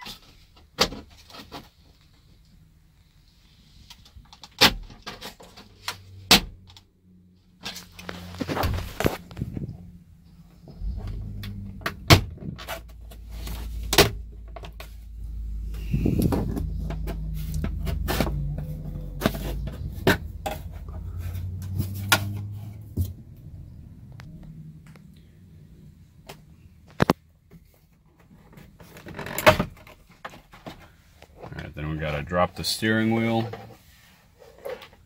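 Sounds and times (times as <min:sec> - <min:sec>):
low rumble: 0:07.9 - 0:26.8.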